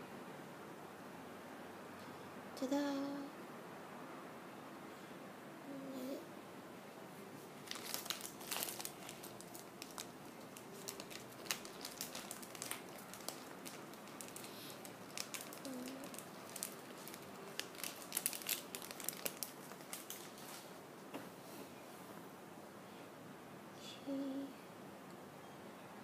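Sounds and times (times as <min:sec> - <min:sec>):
plastic packaging crinkling: 0:07.6 - 0:20.7.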